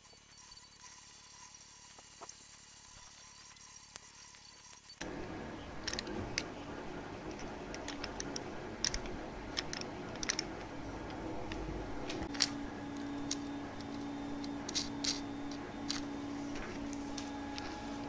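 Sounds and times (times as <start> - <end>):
small parts clicking: 3.7 - 18.0
steady low hum: 5.0 - 18.0.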